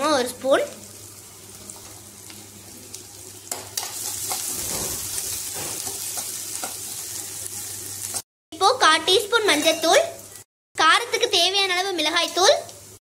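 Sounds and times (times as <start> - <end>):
onions sizzling in oil: 0.0 - 13.0
spatula scraping pan: 3.8 - 6.8.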